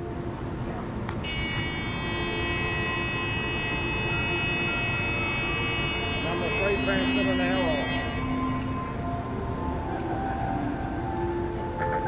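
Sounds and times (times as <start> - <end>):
high whistling tones: 1.3 - 9.1.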